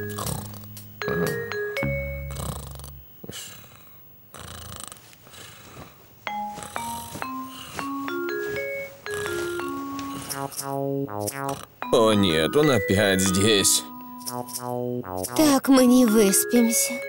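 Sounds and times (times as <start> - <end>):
plinking mallet instrument music: 0.0 - 2.6, 6.3 - 10.4, 11.8 - 14.6, 16.0 - 17.0
cartoon donkey snoring: 0.0 - 5.8, 6.4 - 7.7, 9.1 - 11.8.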